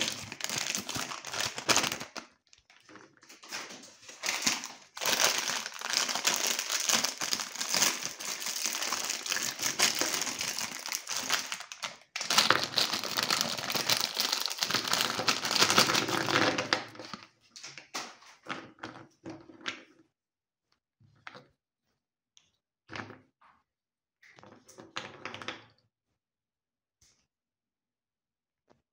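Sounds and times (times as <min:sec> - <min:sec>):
plastic wrapper crinkling: 0:00.0 - 0:17.3.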